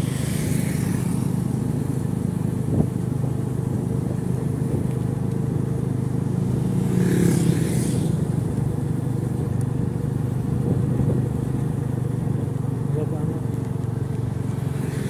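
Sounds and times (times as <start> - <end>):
vehicle passing: 0.0 - 2.8, 6.2 - 9.2, 13.0 - 15.0
motorcycle engine running: 0.0 - 15.0.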